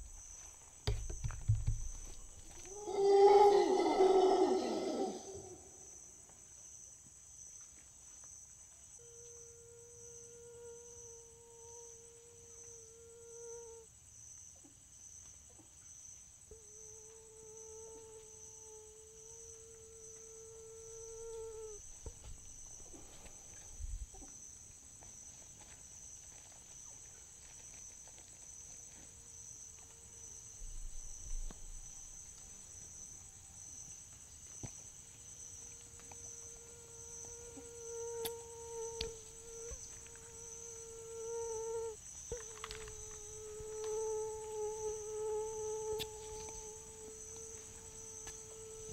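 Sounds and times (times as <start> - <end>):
insects shrilling: 0.0 - 5.9, 35.3 - 48.9.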